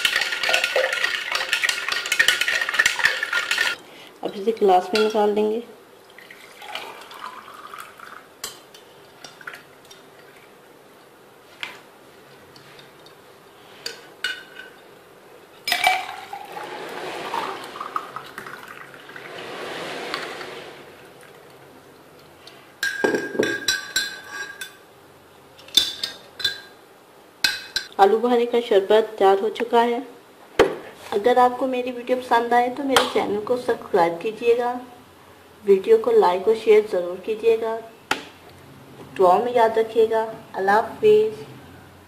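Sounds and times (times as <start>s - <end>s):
liquid pouring into glass: 6.1s - 8.3s, 15.7s - 19.3s
ice clinking against glass: 15.7s - 16.6s.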